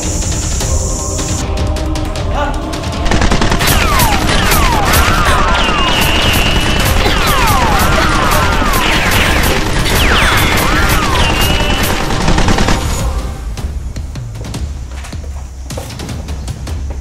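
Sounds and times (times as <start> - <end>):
automatic gunfire: 3.1 - 13.1.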